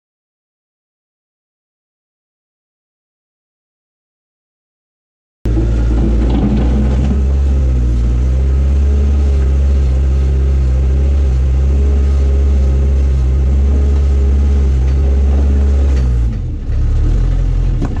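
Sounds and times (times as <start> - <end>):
loader bucket digging into rocks: 5.5 - 9.8, 13.5 - 18.0
diesel engine running under load: 5.5 - 18.0.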